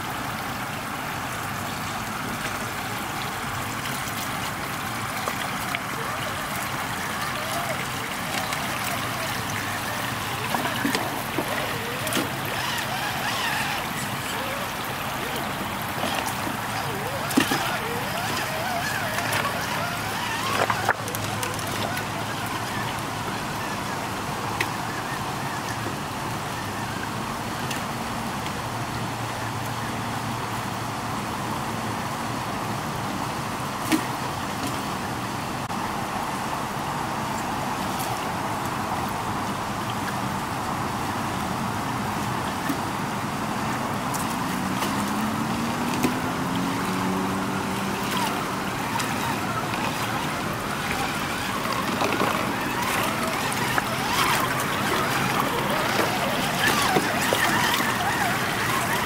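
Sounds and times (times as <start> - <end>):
stream running over rocks: 0.0 - 59.0
toy car electric motor whine: 6.0 - 23.8, 44.9 - 59.0.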